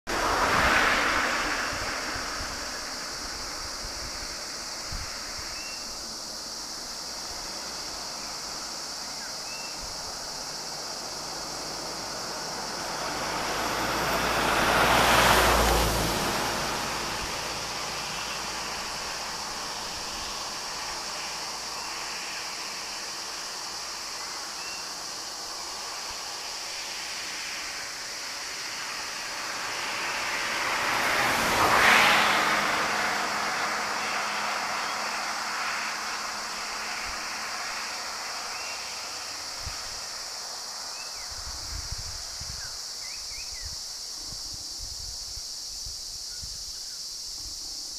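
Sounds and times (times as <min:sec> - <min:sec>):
vehicle driving past: 0:00.1 - 0:05.3, 0:10.0 - 0:40.9.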